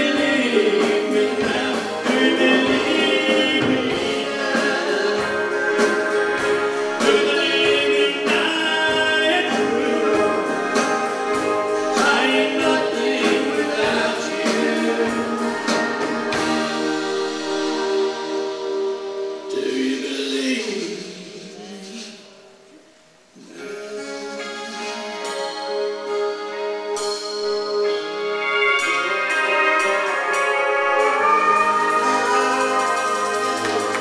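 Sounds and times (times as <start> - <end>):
electric guitar: 0.0 - 20.0, 23.5 - 34.0
acoustic guitar: 0.0 - 21.0
bass: 0.0 - 21.5, 23.7 - 34.0
drums: 0.0 - 34.0.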